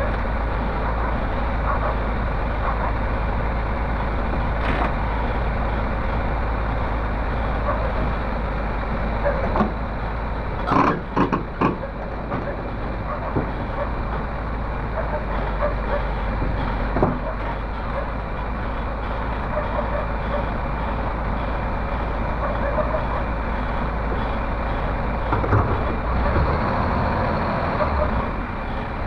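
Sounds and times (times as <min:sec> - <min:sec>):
excavator diesel engine running: 0:00.0 - 0:29.0.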